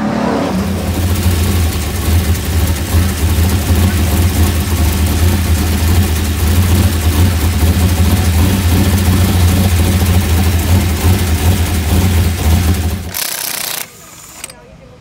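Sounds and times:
race car engine running: 0.0 - 14.5.

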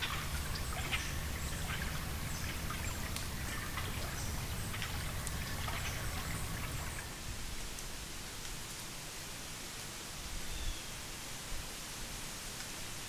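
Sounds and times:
steady low rumble: 0.0 - 7.5
water dripping and trickling: 0.0 - 9.0.

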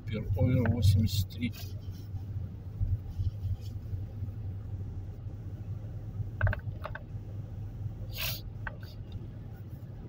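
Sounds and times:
engine and road rumble in car: 0.0 - 10.0
brief hiss: 8.1 - 8.5.

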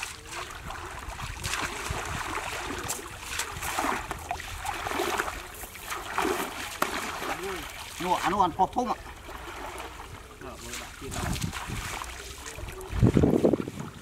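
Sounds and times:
wind rumble on microphone: 0.0 - 5.6, 9.9 - 14.0
fishing net hauled through water: 0.0 - 14.0
water sloshing and splashing: 0.0 - 14.0.

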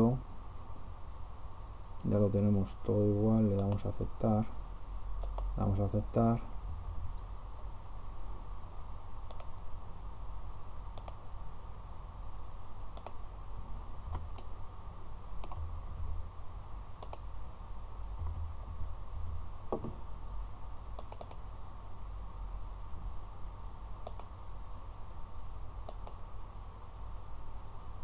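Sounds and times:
steady low hum: 0.0 - 28.0
computer mouse clicking: 3.3 - 3.9, 5.2 - 5.5, 9.2 - 9.6, 10.9 - 11.2, 12.9 - 13.2, 15.4 - 15.6, 17.0 - 17.3, 21.0 - 21.4, 24.0 - 24.3, 25.8 - 26.2.

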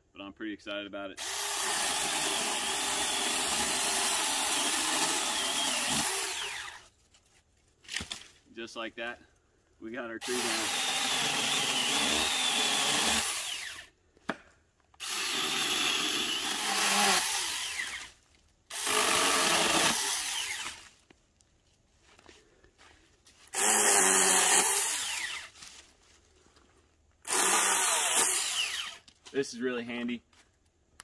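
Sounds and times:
mini chainsaw cutting branches: 1.2 - 6.9, 10.2 - 13.9, 15.0 - 20.9, 23.5 - 25.6, 27.2 - 29.1.

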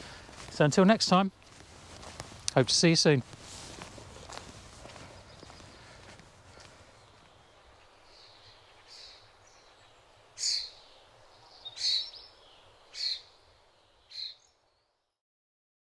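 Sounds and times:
faint background hiss: 0.0 - 14.9
bird calling: 4.0 - 14.5.

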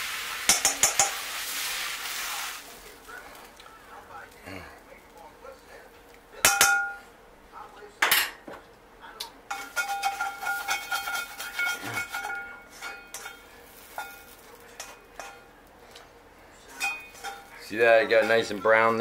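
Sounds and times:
wok ringing: 0.4 - 1.3, 6.4 - 7.1, 9.5 - 15.5, 16.7 - 19.0
spatula scraping a wok: 9.5 - 15.5, 16.7 - 19.0.

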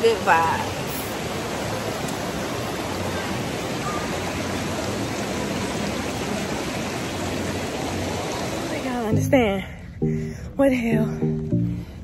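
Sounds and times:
river rapids rushing over rocks: 0.0 - 9.1.

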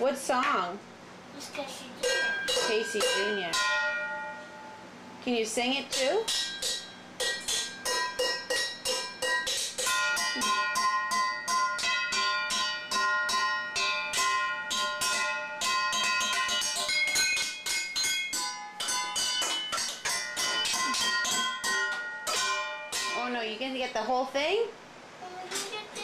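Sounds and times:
spoon striking metal pots: 2.0 - 4.6, 5.7 - 23.8.

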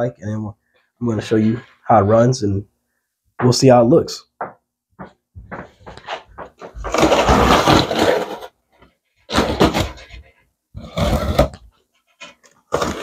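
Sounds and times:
rustling: 5.6 - 10.4
packing tape ripping off box: 6.8 - 8.5, 9.3 - 10.1.

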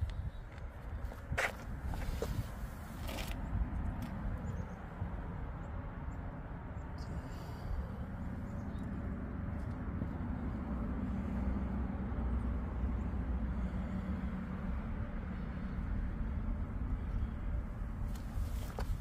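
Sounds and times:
car engine idling: 7.0 - 19.0.

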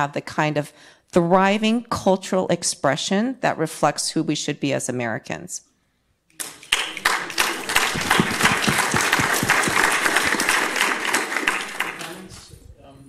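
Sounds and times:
audience applauding: 6.4 - 12.4.

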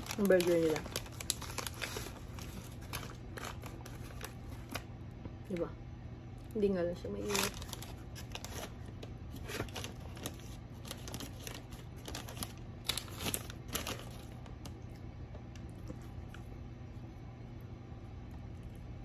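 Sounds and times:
paper wrapper rustling: 0.0 - 4.9, 7.2 - 14.7.

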